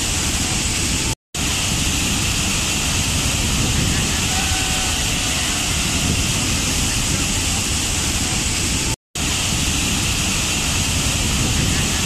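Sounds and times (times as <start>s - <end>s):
waterfall crashing onto rocks: 0.0s - 12.0s.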